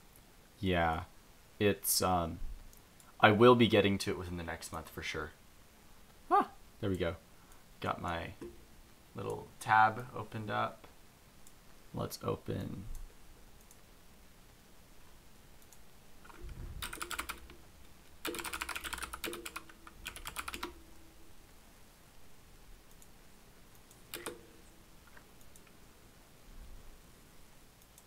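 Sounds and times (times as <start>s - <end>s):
typing on computer keyboard: 16.3s - 17.6s, 18.2s - 20.8s, 24.1s - 24.5s.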